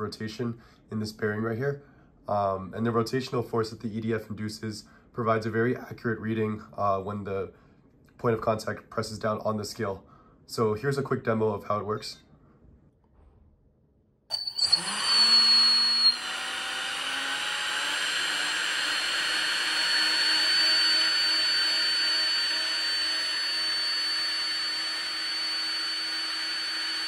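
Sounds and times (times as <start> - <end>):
electric fan high-pitched whine: 14.3 - 27.0.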